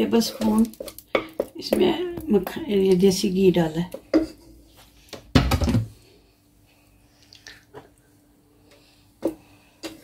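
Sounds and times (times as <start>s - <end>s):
wooden spoon scraping pot: 0.0s - 5.2s, 8.7s - 10.0s.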